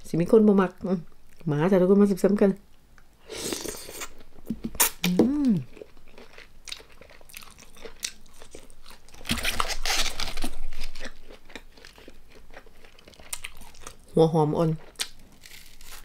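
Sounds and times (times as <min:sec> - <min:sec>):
person humming mm: 0:04.8 - 0:05.7
chewing and crunching food: 0:05.4 - 0:16.0.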